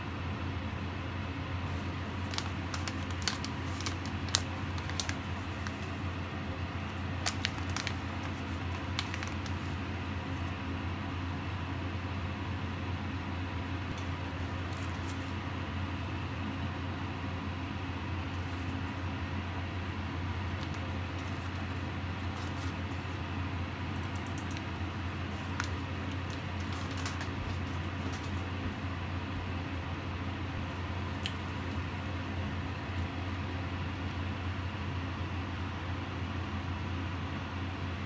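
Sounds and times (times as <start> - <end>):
plastic bag crinkling: 1.7 - 6.2, 6.9 - 10.5, 14.3 - 15.4, 20.4 - 23.2, 24.0 - 28.9.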